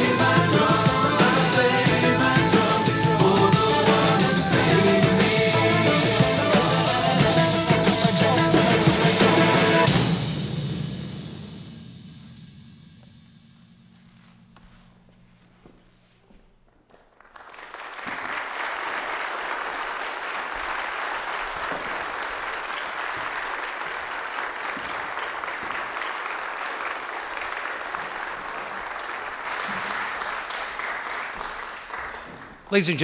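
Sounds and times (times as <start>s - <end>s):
audience applauding: 0.0s - 9.9s, 16.9s - 33.0s.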